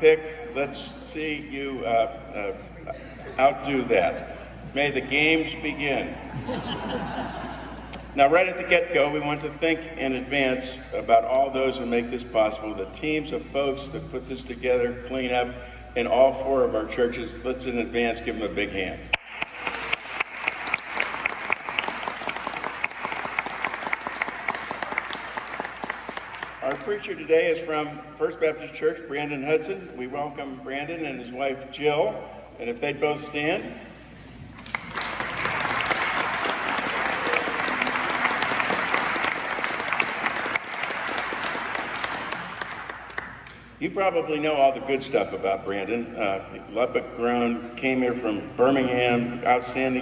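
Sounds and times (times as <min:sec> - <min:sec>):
close hand claps: 0:19.1 - 0:26.9, 0:34.6 - 0:43.7
audience applauding: 0:19.2 - 0:27.0, 0:34.6 - 0:43.5.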